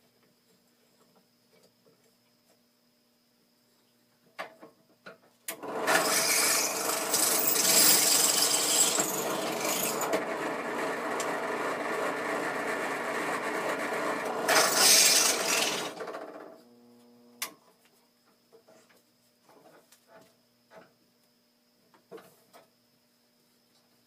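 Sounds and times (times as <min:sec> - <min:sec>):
drill press bit cutting: 0:05.6 - 0:16.1.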